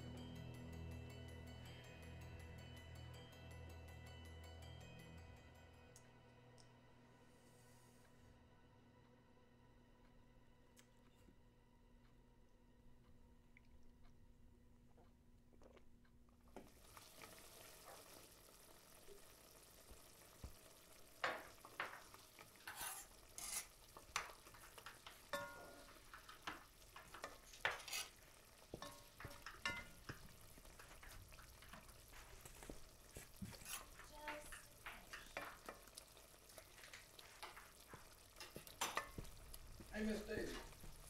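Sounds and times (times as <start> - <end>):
food sizzling: 16.5 - 41.0
utensils clinking on pans: 21.2 - 40.9.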